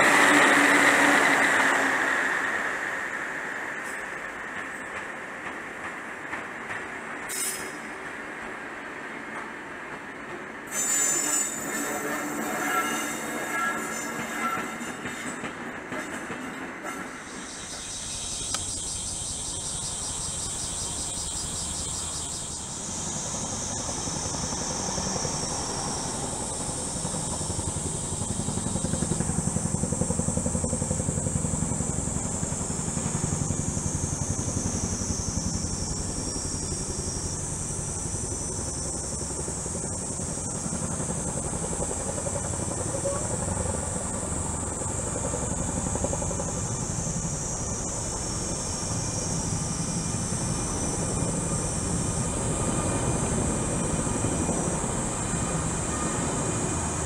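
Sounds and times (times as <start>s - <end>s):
helicopter rotor thrum: 21.4s - 57.0s.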